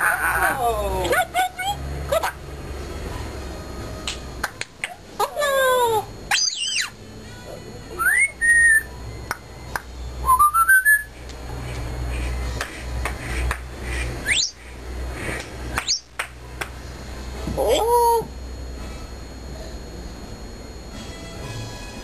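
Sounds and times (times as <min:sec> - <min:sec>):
low steady hum: 0:00.0 - 0:22.0
parrot whistling: 0:06.3 - 0:07.0, 0:08.0 - 0:09.0, 0:10.2 - 0:11.2, 0:14.2 - 0:14.6, 0:15.8 - 0:16.1.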